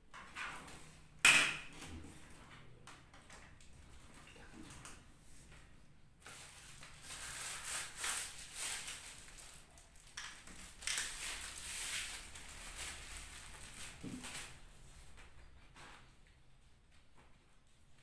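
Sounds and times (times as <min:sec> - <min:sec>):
plastic wrapping crinkling: 0:06.2 - 0:14.8.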